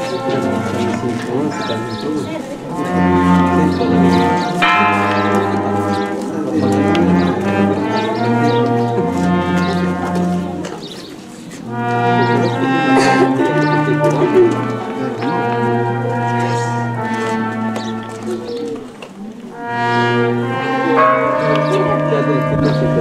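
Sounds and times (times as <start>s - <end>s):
sousaphone bass line: 0.0s - 10.6s, 11.7s - 18.7s
trumpets playing melody: 0.0s - 23.0s.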